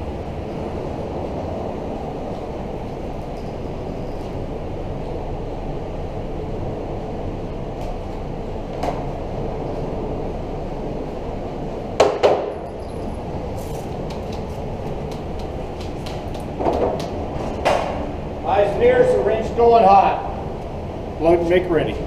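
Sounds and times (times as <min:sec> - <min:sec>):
sharp knocks: 0:12.0 - 0:12.6
light clicks and clinks: 0:12.5 - 0:14.6.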